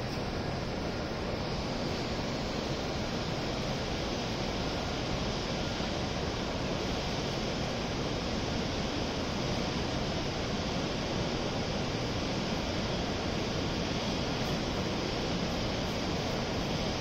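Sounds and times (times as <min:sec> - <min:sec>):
station platform ambience: 0:00.0 - 0:17.0.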